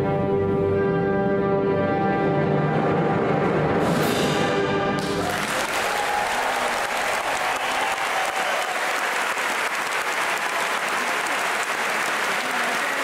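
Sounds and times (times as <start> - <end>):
audience applauding: 5.0 - 13.0
faint crowd voices: 10.2 - 13.0.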